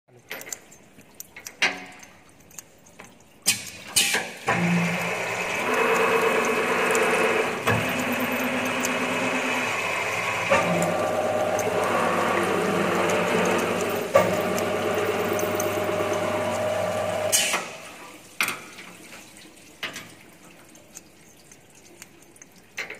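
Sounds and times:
machine spindle drive whining: 0:04.5 - 0:17.6.

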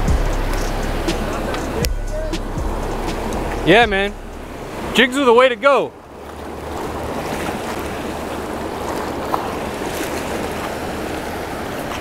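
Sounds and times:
river water rushing over rocks: 0:00.0 - 0:12.0.

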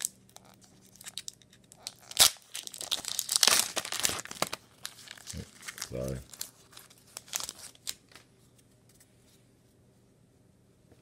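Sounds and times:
foil wrappers crinkling: 0:00.0 - 0:08.3.

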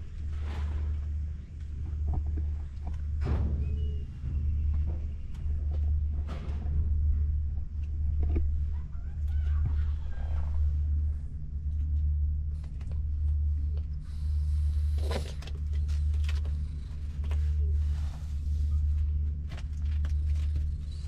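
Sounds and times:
cat purring: 0:12.6 - 0:21.0.

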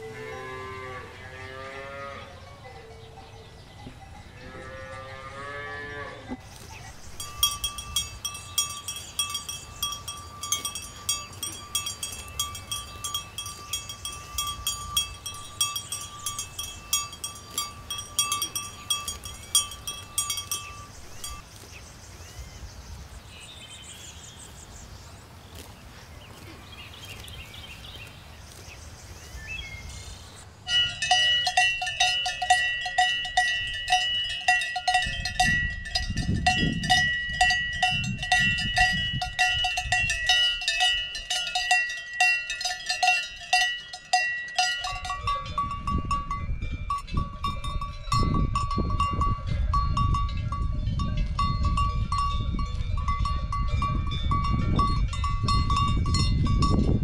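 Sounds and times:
cowbells clanking: 0:02.4 - 0:21.7, 0:30.6 - 0:57.0
higher-pitched bell: 0:07.2 - 0:21.4, 0:30.7 - 0:57.0.

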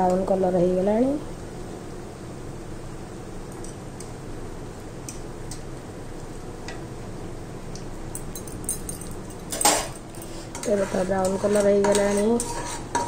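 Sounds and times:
oil sizzling with pops: 0:03.2 - 0:08.4.

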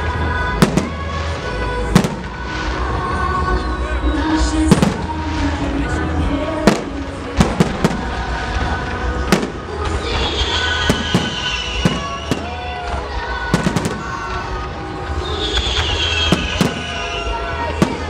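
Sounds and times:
firework whistles falling in pitch: 0:10.2 - 0:12.7, 0:15.0 - 0:18.0.

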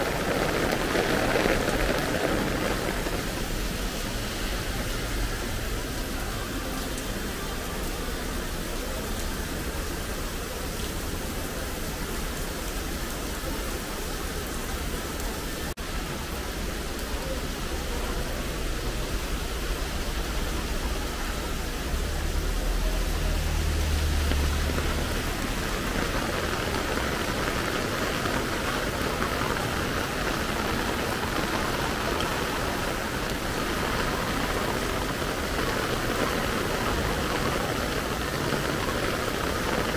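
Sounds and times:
heavy rain on street: 0:00.0 - 0:39.9
vehicle passing rumble: 0:21.0 - 0:39.9.

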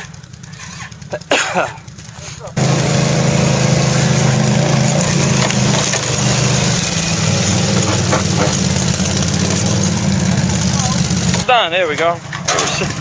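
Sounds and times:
atv engines running: 0:00.0 - 0:13.0.

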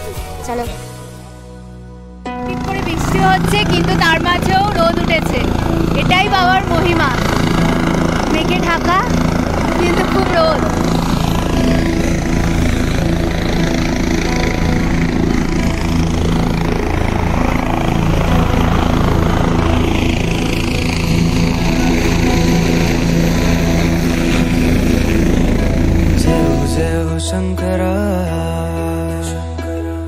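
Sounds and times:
low mechanical drone: 0:01.1 - 0:27.9.

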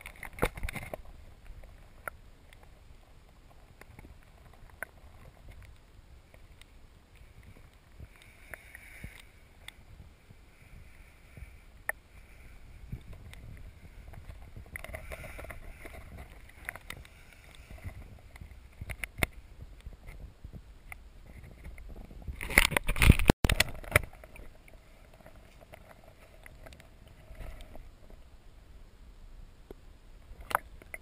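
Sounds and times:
sharp clicks and ticks: 0:00.0 - 0:02.7, 0:12.9 - 0:20.2, 0:20.8 - 0:27.8.

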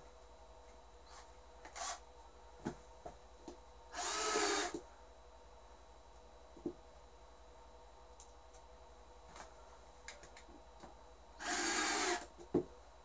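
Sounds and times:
cordless drill whirring: 0:01.1 - 0:02.0, 0:03.9 - 0:04.8, 0:11.4 - 0:12.3.

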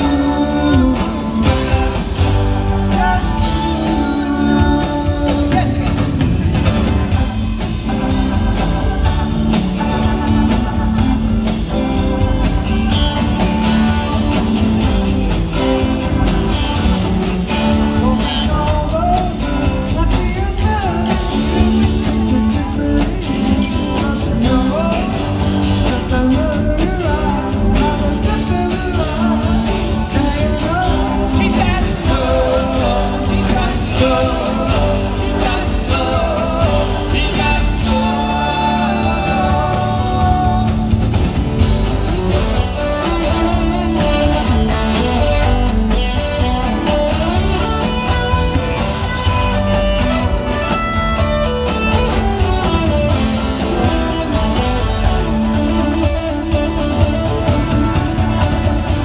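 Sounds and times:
sung vocals: 0:00.0 - 0:12.4, 0:13.3 - 0:41.8
bass guitar: 0:00.0 - 0:59.0
drum kit: 0:00.0 - 0:59.0
electric guitars: 0:00.0 - 0:59.0.

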